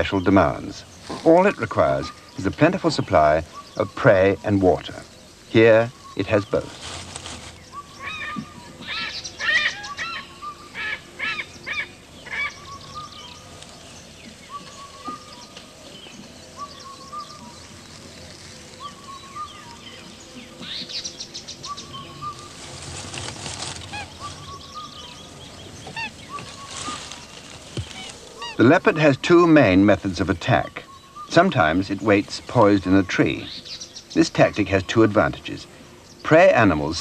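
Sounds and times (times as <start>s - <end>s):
soft repeated bird call: 0.0s - 37.0s
quick arched bird calls: 23.7s - 28.7s.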